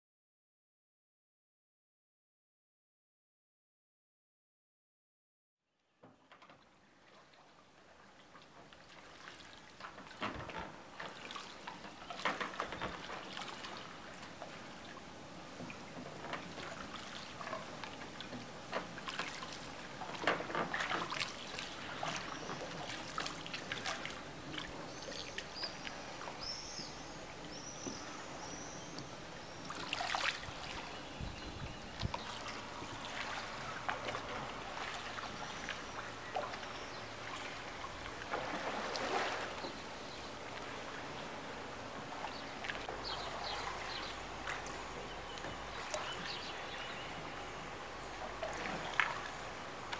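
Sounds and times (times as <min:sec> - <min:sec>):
water sloshing around boat: 0:06.0 - 0:49.9
oar splashing into water: 0:16.4 - 0:25.9, 0:29.7 - 0:31.1, 0:31.9 - 0:39.8.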